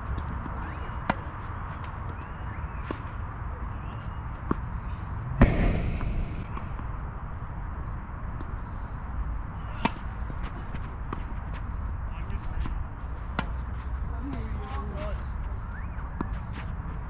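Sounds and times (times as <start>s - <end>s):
tennis balls struck by racquets: 2.7s - 7.2s, 9.4s - 11.5s, 13.2s - 15.0s
low rumble: 5.2s - 7.2s.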